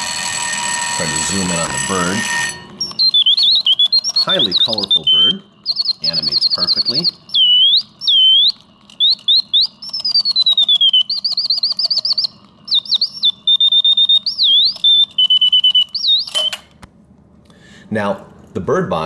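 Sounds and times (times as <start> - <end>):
mechanical bird whistle singing: 1.0 - 16.7
sharp mechanical click: 7.8 - 16.8.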